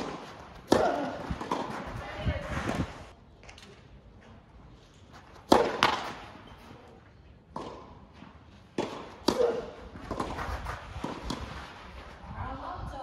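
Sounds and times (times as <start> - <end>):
tennis racket hitting ball: 0.0 - 2.7, 5.4 - 6.4, 8.7 - 11.5
ball knocks and bounces: 5.2 - 6.7.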